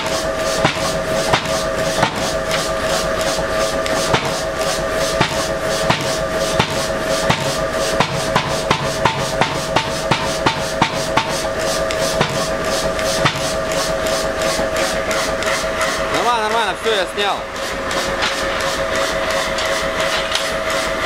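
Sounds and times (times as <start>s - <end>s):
steady hum: 0.0s - 21.0s
hammer striking anvil: 0.6s - 2.3s, 4.1s - 4.4s, 5.2s - 11.5s.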